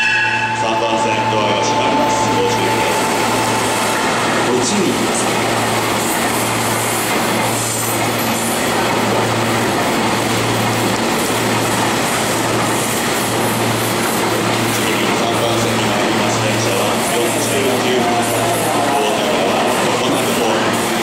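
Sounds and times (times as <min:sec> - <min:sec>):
electric train humming: 0:00.0 - 0:21.0
station noise: 0:00.0 - 0:21.0.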